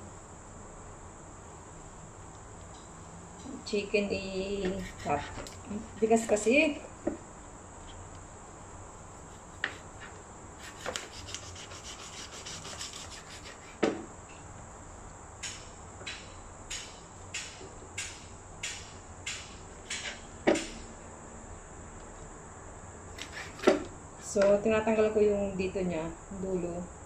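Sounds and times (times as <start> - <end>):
cleaver sawing strokes: 4.6 - 6.1, 9.2 - 13.8, 23.2 - 23.8
cleaver chopping on board: 23.2 - 23.9.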